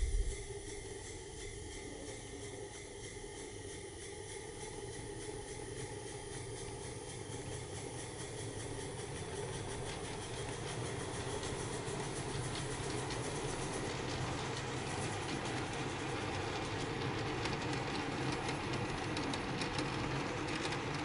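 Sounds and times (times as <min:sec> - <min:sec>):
model steam engine chuffing: 0:04.8 - 0:21.0.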